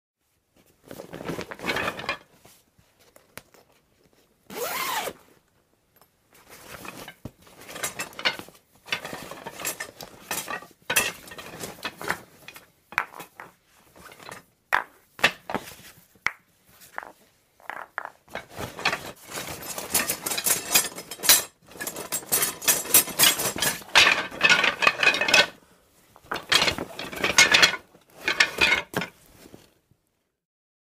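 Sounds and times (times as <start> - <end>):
objects rustling and clinking in bag: 0.6 - 5.1, 6.4 - 14.5, 17.7 - 29.8.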